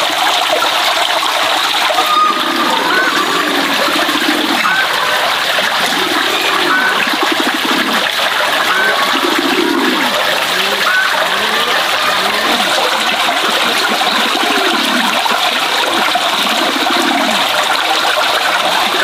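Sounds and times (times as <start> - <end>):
water pouring into a bucket: 0.0 - 19.0.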